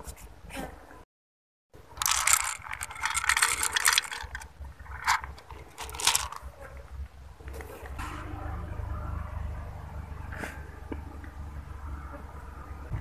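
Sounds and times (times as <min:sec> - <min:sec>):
kitten crunching dry kibble: 0:01.8 - 0:06.5.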